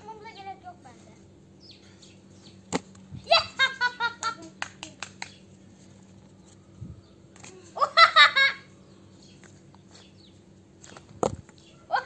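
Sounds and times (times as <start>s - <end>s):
young child laughing: 3.1s - 5.1s, 7.4s - 8.8s.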